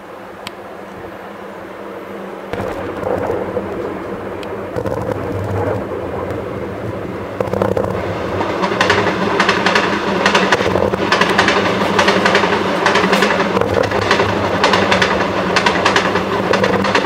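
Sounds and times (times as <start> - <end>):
fireworks crackling: 2.5 - 14.9
fireworks shell bursts rumbling: 2.5 - 15.0.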